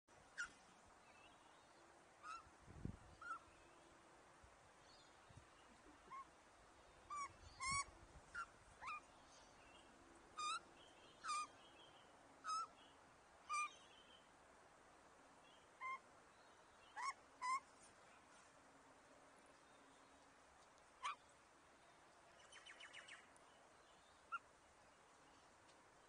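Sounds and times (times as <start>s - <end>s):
bird calling clear notes: 7.1s - 9.1s, 13.4s - 14.0s, 16.8s - 17.7s, 21.0s - 21.3s.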